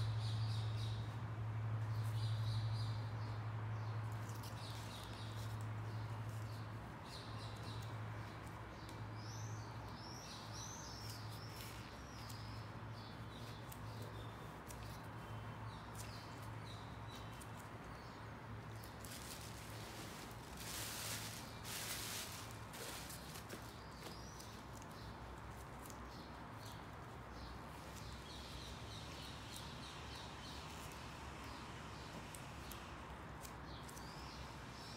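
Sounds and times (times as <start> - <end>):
bird chirping: 1.8 - 34.9
plastic sheet rustling: 18.8 - 24.0
rubber drysuit rustling: 19.0 - 24.2.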